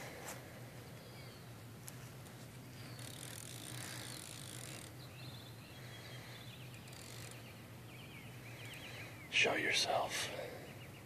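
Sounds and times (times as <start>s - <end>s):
fishing reel drag ratcheting: 2.9s - 5.0s, 6.7s - 7.4s.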